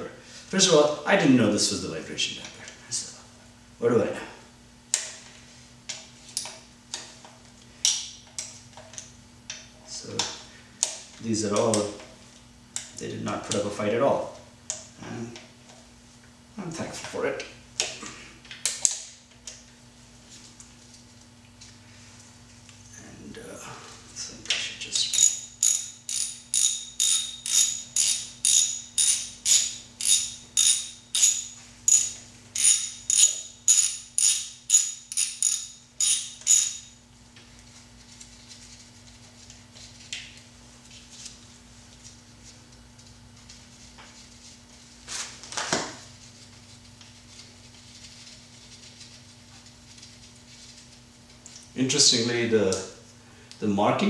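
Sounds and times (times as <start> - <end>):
hand ratchet clicking: 25.0 - 36.9.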